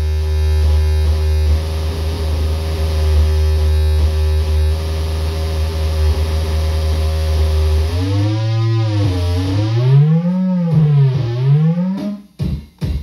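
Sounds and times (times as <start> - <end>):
warbling electronic tone: 5.9 - 12.2.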